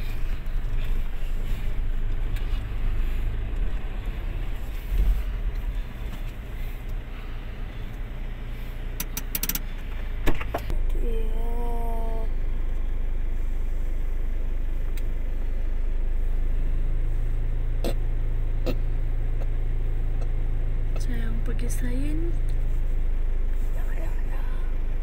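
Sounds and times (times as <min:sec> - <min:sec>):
vehicle engine idling: 0:00.0 - 0:25.0
sharp clicks: 0:09.0 - 0:09.7.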